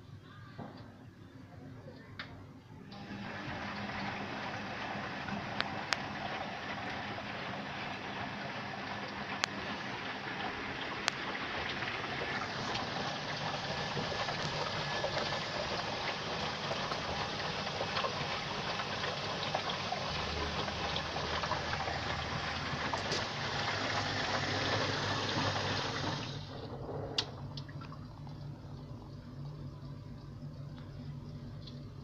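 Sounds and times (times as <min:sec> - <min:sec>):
water rushing into washing machine: 0:02.8 - 0:28.9.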